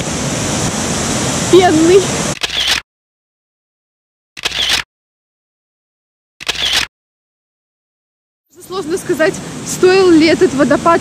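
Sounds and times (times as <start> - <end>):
waterfall rushing: 0.0 - 2.4
camera shutter click: 2.4 - 2.8, 4.4 - 4.9, 6.4 - 6.9.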